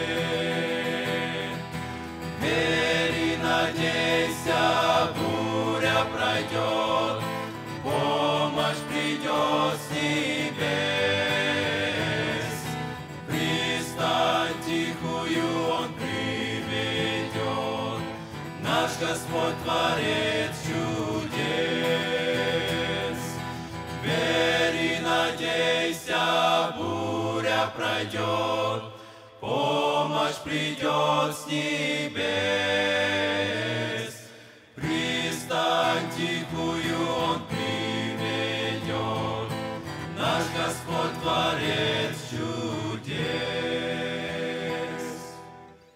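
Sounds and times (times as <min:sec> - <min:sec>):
men singing a hymn together: 0:00.0 - 0:45.7
acoustic guitar: 0:00.0 - 0:45.9.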